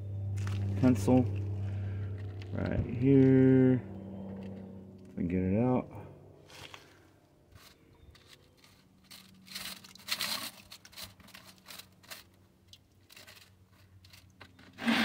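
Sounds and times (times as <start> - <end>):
stones scraping on wire mesh: 6.5 - 12.4, 13.0 - 15.0.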